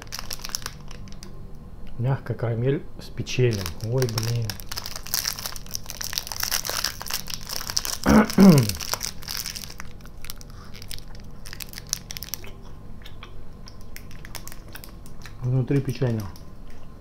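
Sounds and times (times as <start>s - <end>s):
candy wrapper crinkling: 0.0s - 1.3s, 3.3s - 12.6s, 13.8s - 16.5s
soft chewing clicks: 9.8s - 17.0s.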